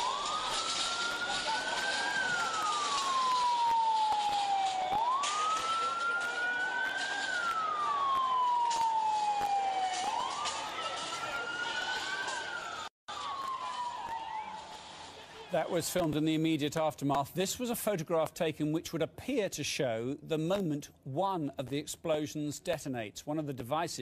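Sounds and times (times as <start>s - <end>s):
emergency siren wailing: 0.0s - 15.8s.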